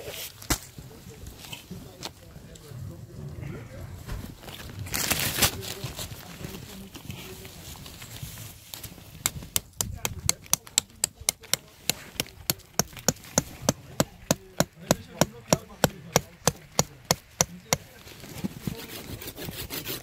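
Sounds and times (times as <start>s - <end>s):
rapid sharp knocking: 9.2s - 17.9s.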